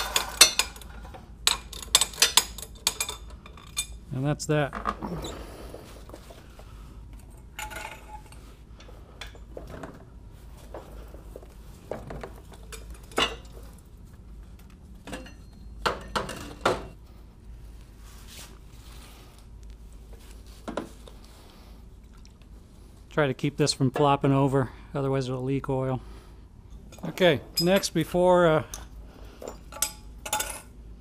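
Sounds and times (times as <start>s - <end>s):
metal parts clinking and clanking: 0.0s - 4.0s, 7.2s - 10.0s, 26.8s - 28.0s, 28.7s - 30.7s.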